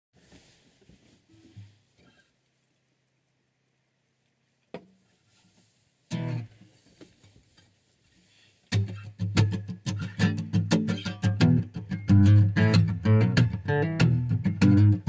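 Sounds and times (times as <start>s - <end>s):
acoustic guitar strumming: 6.1s - 6.7s, 8.7s - 15.0s.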